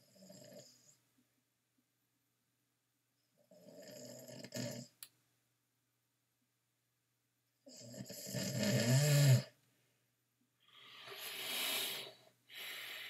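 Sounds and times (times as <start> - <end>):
person snoring: 3.5 - 4.9, 7.7 - 9.5.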